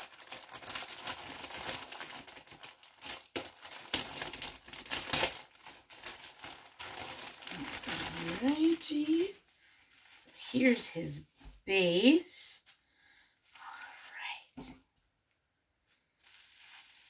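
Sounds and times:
plastic packaging crinkling: 0:00.0 - 0:10.9, 0:16.2 - 0:17.0.

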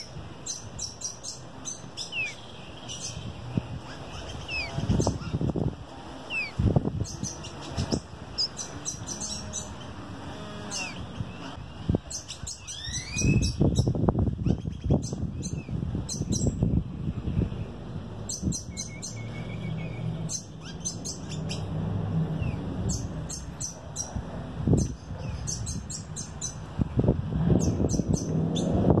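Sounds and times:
songbirds chirping: 0:00.0 - 0:29.0
low microphone rumble: 0:13.2 - 0:29.0.

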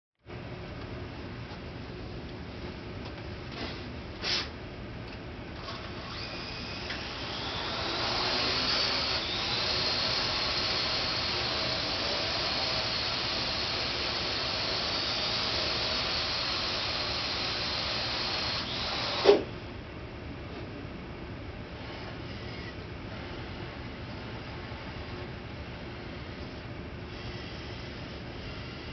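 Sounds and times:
drone rotors whining: 0:06.0 - 0:19.4.

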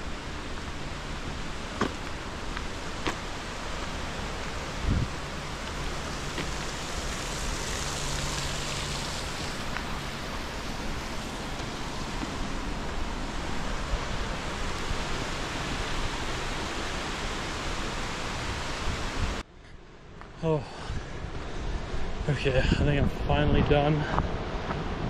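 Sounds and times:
river rushing: 0:00.0 - 0:19.4.

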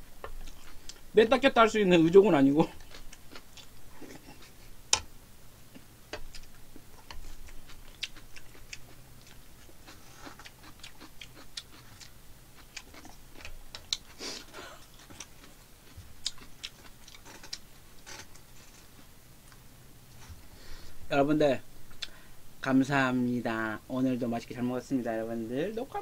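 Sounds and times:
soft chewing: 0:00.0 - 0:01.2, 0:01.9 - 0:20.9.

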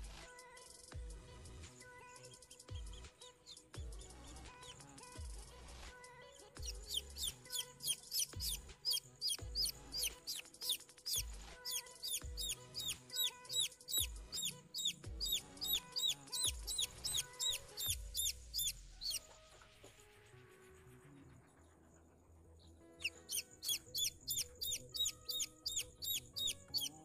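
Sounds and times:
chick peeping: 0:06.6 - 0:19.2, 0:23.0 - 0:27.0.

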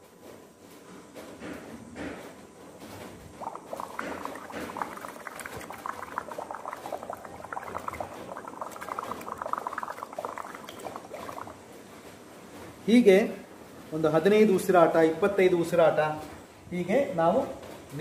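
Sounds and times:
water bubbling through straw: 0:03.3 - 0:11.8.

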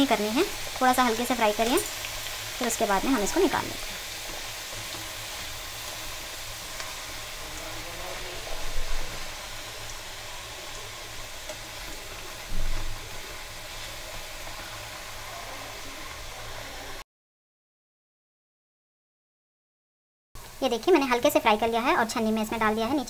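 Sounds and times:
food sizzling in hot oil: 0:00.0 - 0:17.0, 0:20.4 - 0:23.0
skimmer stirring in oil: 0:00.0 - 0:17.0.

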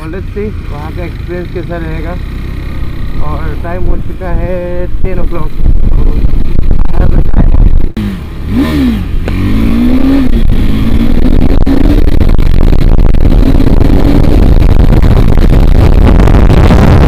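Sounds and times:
motorcycle engine accelerating: 0:00.0 - 0:17.0
wind rumble on microphone: 0:02.9 - 0:08.1, 0:09.0 - 0:17.0.

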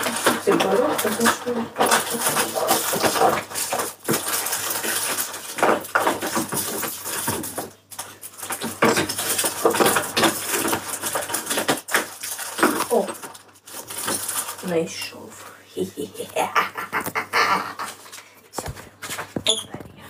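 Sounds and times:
small hard objects clattering: 0:00.0 - 0:15.4.

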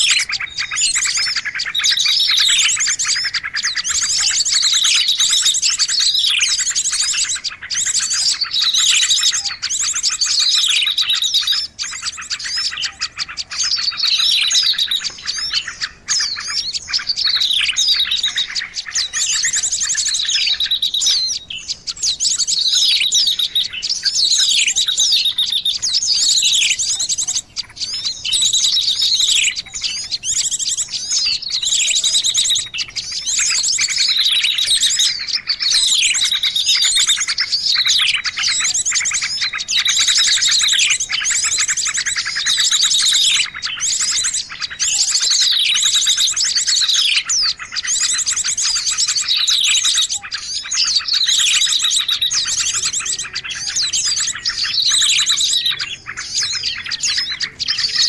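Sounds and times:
songbirds chirping and trilling: 0:00.0 - 0:58.0.

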